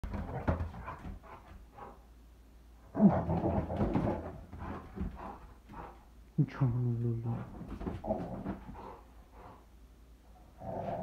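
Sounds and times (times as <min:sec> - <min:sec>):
dog growling: 0:02.8 - 0:06.0, 0:07.3 - 0:09.6, 0:10.5 - 0:11.0
dog thrashing toy on tile floor: 0:03.3 - 0:05.2.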